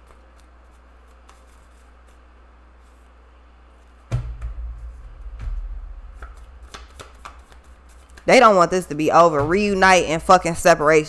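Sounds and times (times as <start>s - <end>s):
low rumble: 4.1s - 10.5s
cards knocking on desk: 6.2s - 8.3s.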